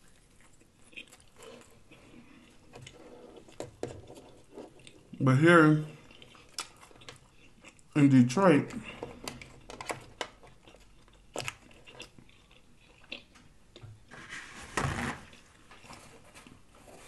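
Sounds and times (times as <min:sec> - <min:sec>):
chewing with wet smacks: 0:00.0 - 0:05.2, 0:05.9 - 0:08.0, 0:08.7 - 0:14.0.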